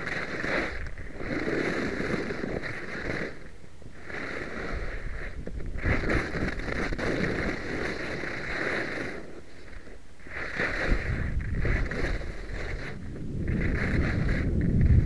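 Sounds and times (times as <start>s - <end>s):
skis scraping on hard snow: 0.0s - 15.0s
wind buffeting microphone: 4.0s - 9.1s, 9.7s - 15.0s.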